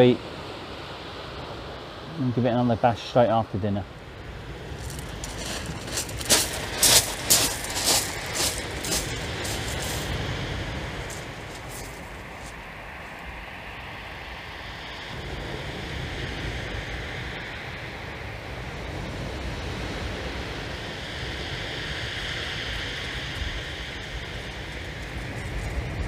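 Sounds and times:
wind rumbling on microphone: 0:04.1 - 0:26.0
surf washing over shingle: 0:04.6 - 0:12.6.

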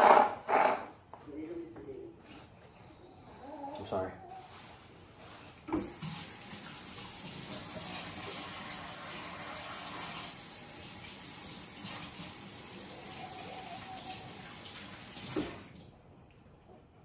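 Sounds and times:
tap running into sink: 0:05.7 - 0:08.5.

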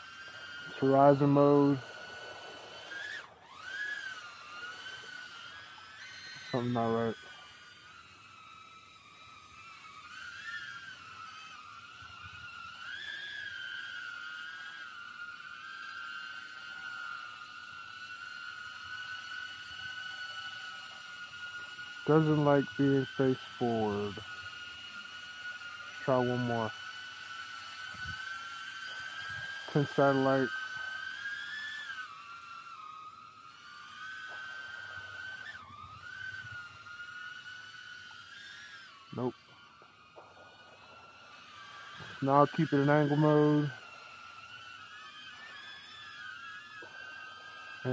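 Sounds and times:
quadcopter motors whining: 0:00.0 - 0:47.9.

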